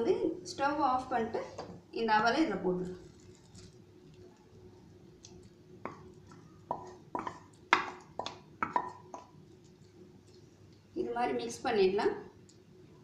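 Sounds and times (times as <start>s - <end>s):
spoon tapping on bowl rim: 6.7s - 9.3s.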